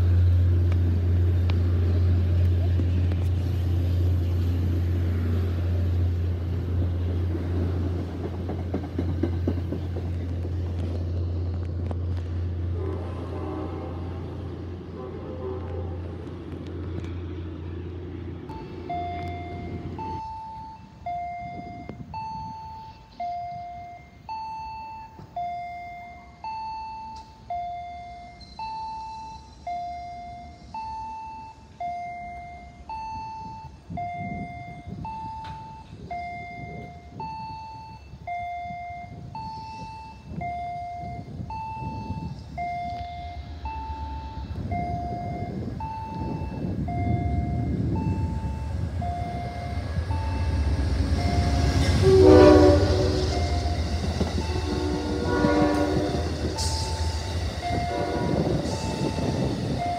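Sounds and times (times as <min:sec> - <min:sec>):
approaching train rumble: 0:00.0 - 0:59.9
diesel train idling hum: 0:00.0 - 0:59.9
two-tone warning beeps: 0:18.5 - 0:59.9.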